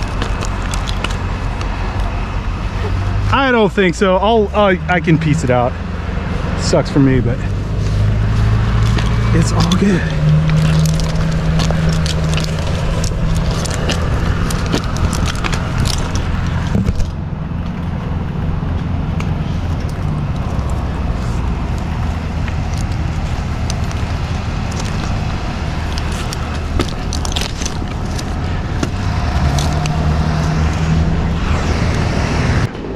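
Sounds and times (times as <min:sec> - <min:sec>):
sharp clicks and crackles: 0:00.0 - 0:02.1, 0:07.8 - 0:17.9, 0:18.7 - 0:32.9
truck engine idling: 0:00.0 - 0:32.1.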